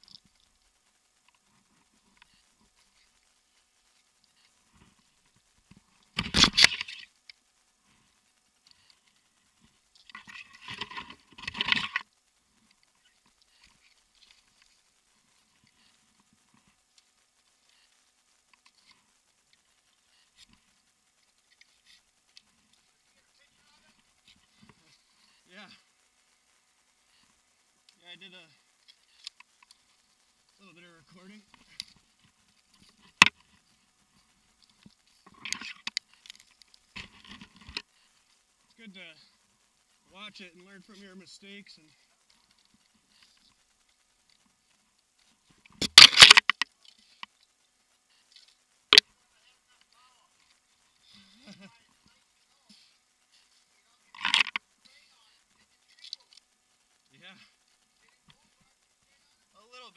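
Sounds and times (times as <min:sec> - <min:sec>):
rope rubbing and rustling: 0:00.0 - 0:38.6.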